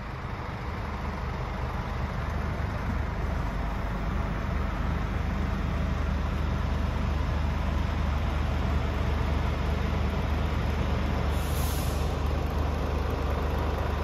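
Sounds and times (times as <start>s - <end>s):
diesel engine idling: 0.0s - 14.0s.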